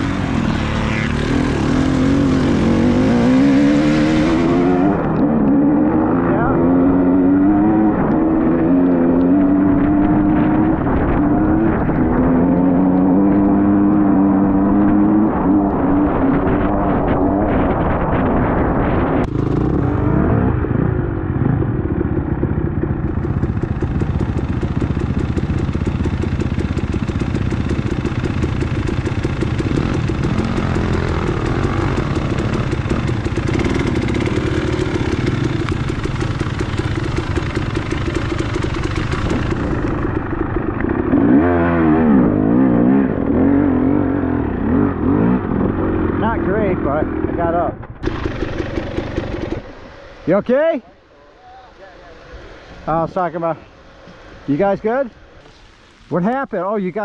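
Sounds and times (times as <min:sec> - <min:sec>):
motorcycle engine revving: 0:00.0 - 0:50.3
steady hiss: 0:51.0 - 0:57.0.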